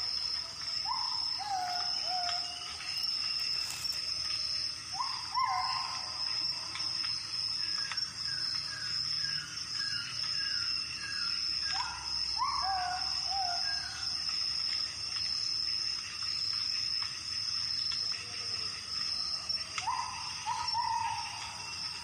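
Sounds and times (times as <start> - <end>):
insects trilling: 0.0 - 22.0.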